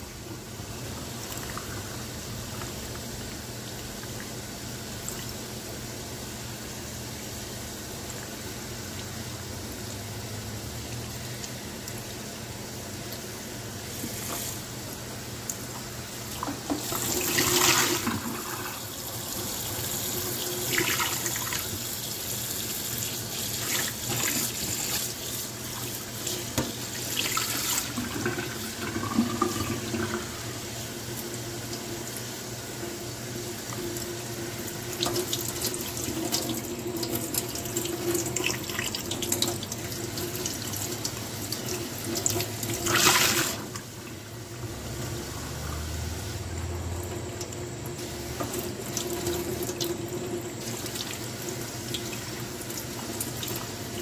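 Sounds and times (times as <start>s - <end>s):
tap water running: 0.0s - 54.0s
sponge rinsed under water: 16.2s - 31.2s.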